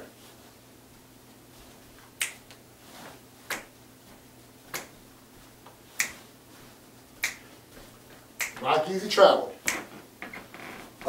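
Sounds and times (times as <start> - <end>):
faint steady hum: 0.0 - 11.0
finger snaps: 2.2 - 2.6, 3.5 - 3.7, 4.7 - 4.9, 6.0 - 6.2, 7.2 - 7.5, 8.4 - 8.6, 9.6 - 9.9.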